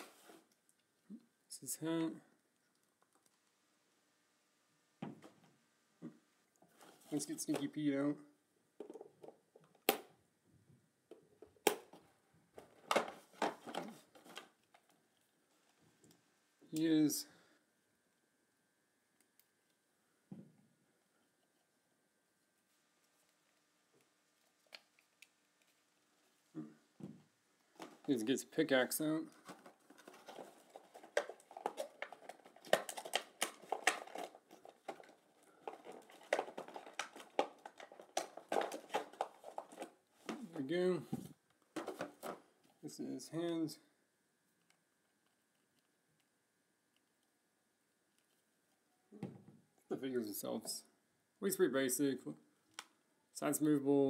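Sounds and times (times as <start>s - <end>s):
hands handling toy box: 11.8s - 15.0s, 27.7s - 28.2s, 29.3s - 40.4s, 41.1s - 42.8s
plastic packaging rustling: 29.2s - 40.4s.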